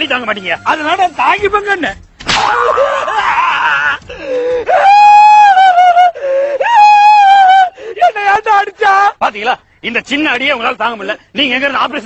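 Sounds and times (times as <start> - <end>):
man wailing in mock crying: 2.6 - 8.1.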